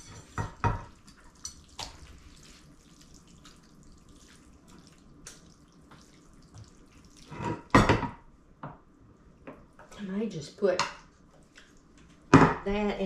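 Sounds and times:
wet food slipping: 0:01.1 - 0:07.3.

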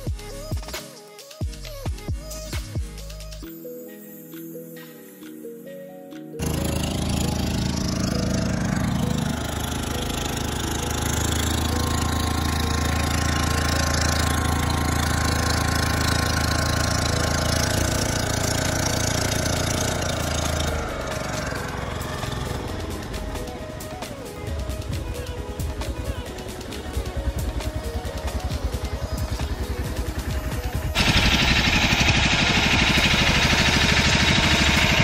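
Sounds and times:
motorboat engine humming: 0:06.4 - 0:35.0.

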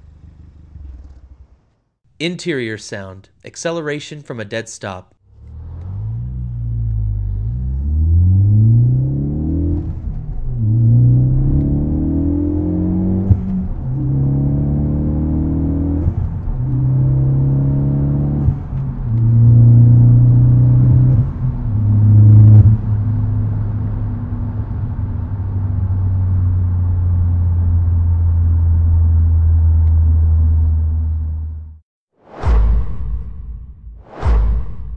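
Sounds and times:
car engine accelerating: 0:05.2 - 0:31.8
car engine droning: 0:05.2 - 0:31.8.

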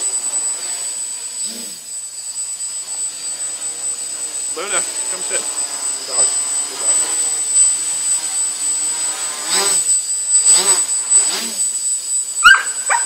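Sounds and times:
quadcopter propellers whining: 0:00.0 - 0:13.0
dog barking: 0:12.4 - 0:13.0.

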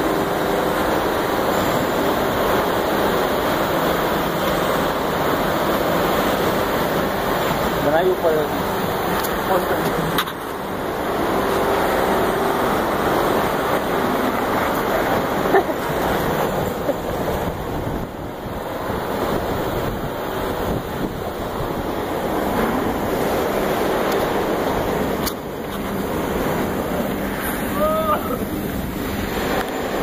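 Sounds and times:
wind on microphone: 0:16.5 - 0:22.0.

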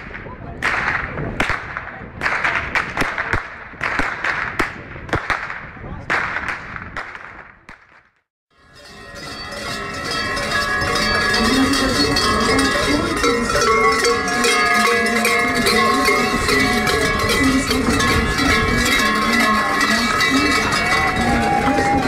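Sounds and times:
large cowbells clanging: 0:08.6 - 0:22.0.

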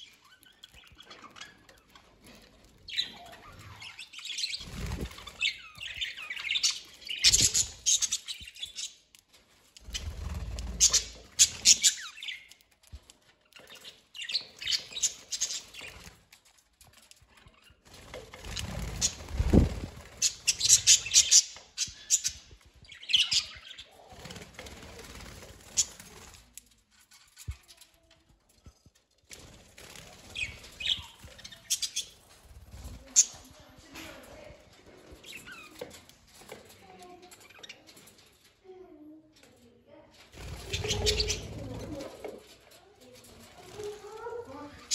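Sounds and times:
wings fluttering: 0:00.0 - 0:38.1, 0:40.2 - 0:44.9
budgerigars chirping: 0:20.2 - 0:23.9, 0:40.7 - 0:41.6.

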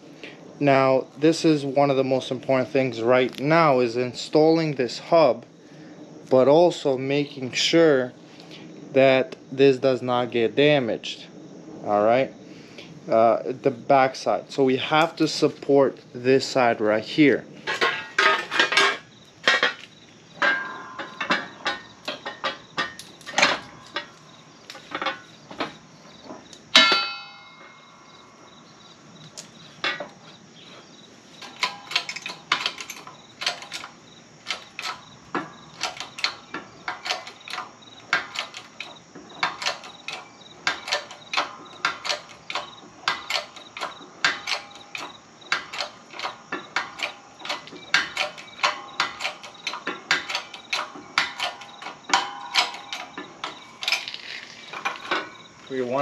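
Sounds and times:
ringing metal clang: 0:17.7 - 0:19.8, 0:20.4 - 0:28.6, 0:34.5 - 0:56.0
sharp metal clicks of tools: 0:31.4 - 0:55.5.

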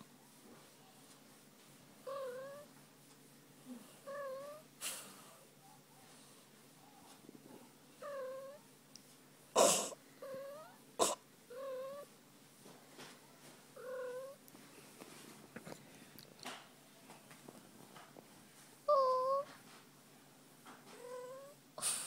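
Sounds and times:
cat purring: 0:02.0 - 0:02.7.

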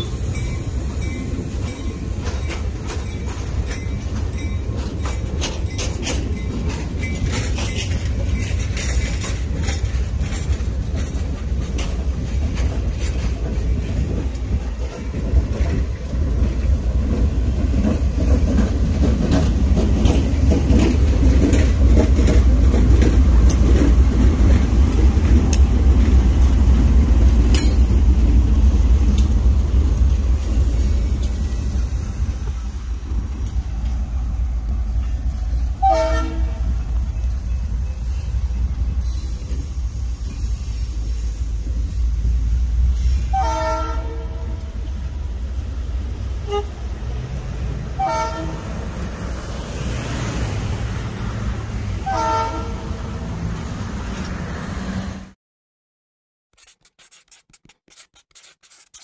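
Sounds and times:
diesel locomotive engine rumble: 0:00.0 - 0:55.4
train wheels clattering over rail joints: 0:00.4 - 0:29.4
train horn toot: 0:35.8 - 0:36.8, 0:43.2 - 0:44.8, 0:46.4 - 0:46.9, 0:48.0 - 0:48.8, 0:52.0 - 0:53.2.

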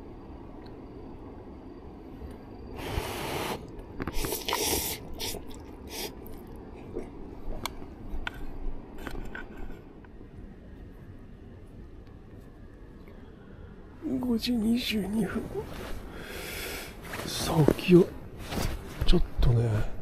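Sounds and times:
material rustling and scraping: 0:17.0 - 0:19.3.

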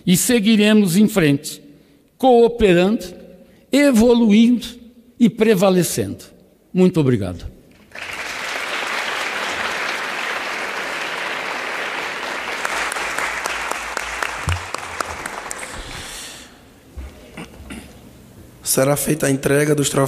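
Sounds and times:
audience applauding: 0:07.8 - 0:16.2.

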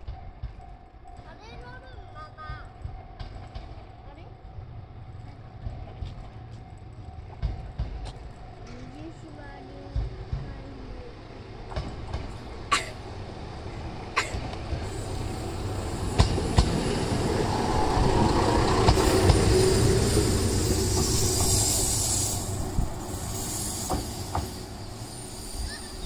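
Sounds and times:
diesel railcar passing: 0:00.0 - 0:26.0
high hiss: 0:14.8 - 0:26.0.

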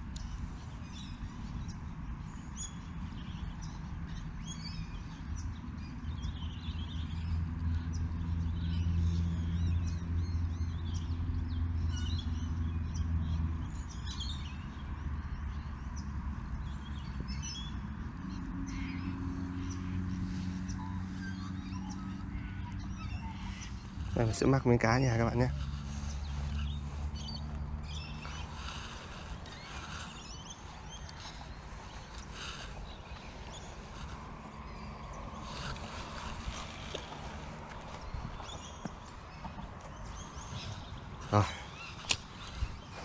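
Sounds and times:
low engine hum: 0:00.0 - 0:43.0
small birds chirping: 0:00.0 - 0:43.0.

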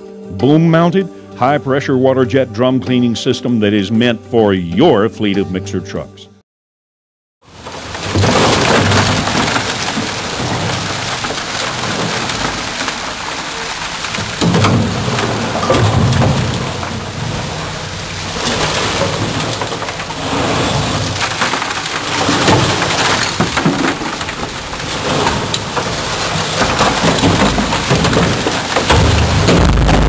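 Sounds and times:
concrete chunks cracking: 0:07.5 - 0:30.0.

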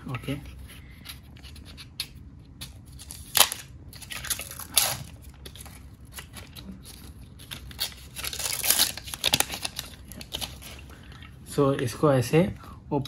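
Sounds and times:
plastic film crackling: 0:02.9 - 0:11.0.

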